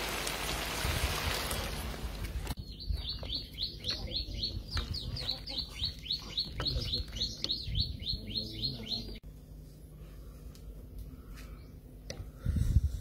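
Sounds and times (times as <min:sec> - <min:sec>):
bird chirping rapidly: 0:02.6 - 0:09.2.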